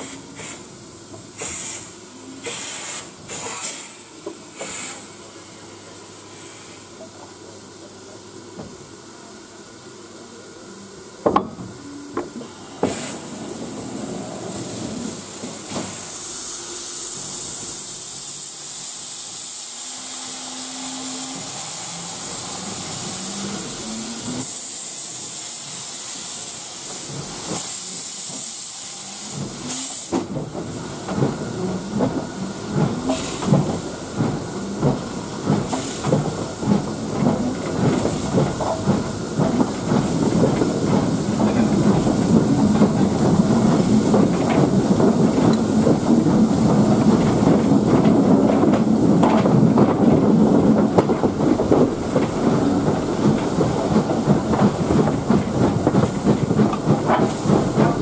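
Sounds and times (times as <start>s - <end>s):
steam hissing: 0.0s - 7.1s, 11.8s - 58.0s
locomotive exhaust beats: 29.3s - 58.0s.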